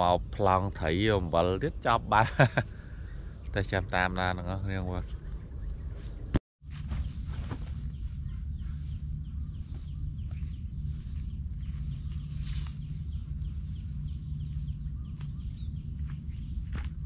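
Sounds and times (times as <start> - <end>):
insect drone: 0.0 - 17.0
low rumble: 5.0 - 17.0.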